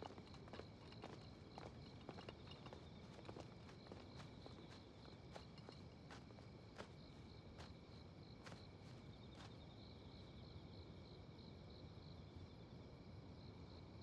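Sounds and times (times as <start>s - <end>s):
soft footsteps: 0.0s - 9.7s
crickets chirping: 0.0s - 14.0s.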